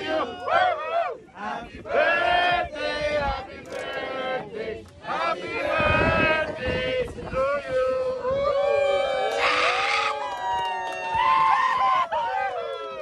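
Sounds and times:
group singing and chanting: 0.0 - 8.5.

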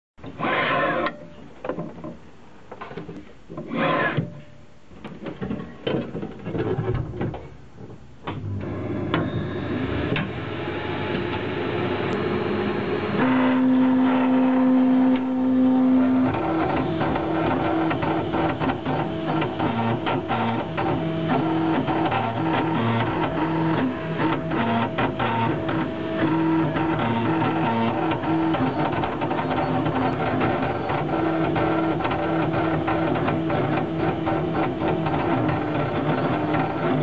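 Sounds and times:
stepper motors whining: 8.8 - 37.0.

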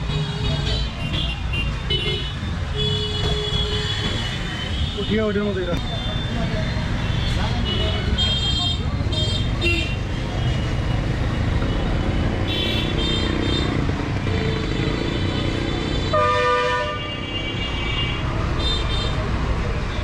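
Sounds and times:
street traffic rumbling: 0.0 - 20.0
vehicle horn honking: 16.1 - 19.2.

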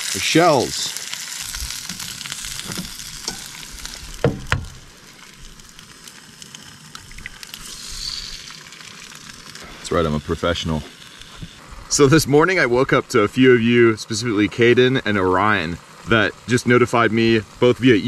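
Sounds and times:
sausages and eggs sizzling in pan: 0.0 - 18.0
short knocks: 1.9 - 3.5, 4.1 - 4.9.

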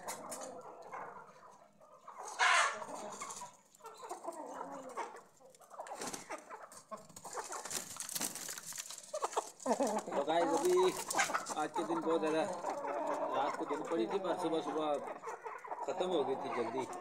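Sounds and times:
chickens clucking: 0.0 - 17.0
loud harsh chicken squawk: 2.1 - 3.3.

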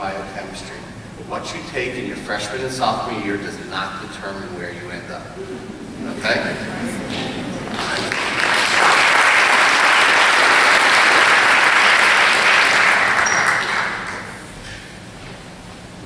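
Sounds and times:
audience applauding: 5.5 - 14.5.

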